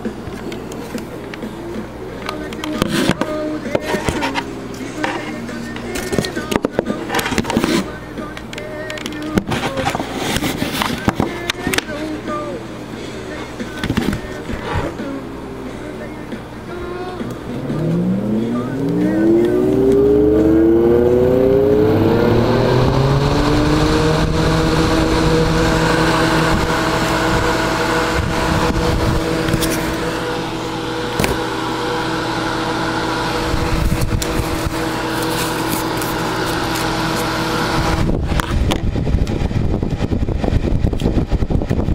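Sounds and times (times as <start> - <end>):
fan humming: 0.0 - 41.9.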